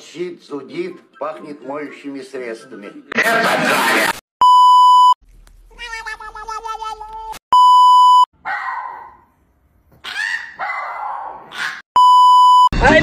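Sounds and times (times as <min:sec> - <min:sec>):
test-pattern beep: 0:07.5 - 0:08.3, 0:12.0 - 0:12.8
small dog crying: 0:10.0 - 0:11.8.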